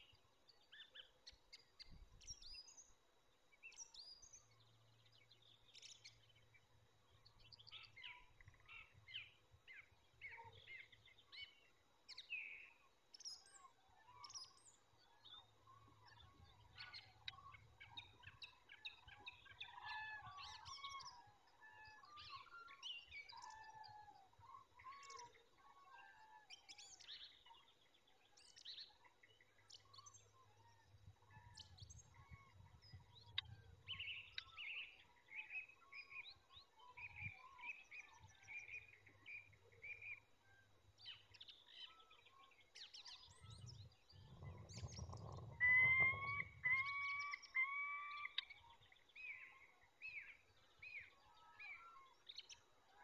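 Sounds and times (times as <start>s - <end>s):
small birds chirping and singing: 0.0s - 53.0s
falcon calling: 45.6s - 48.4s.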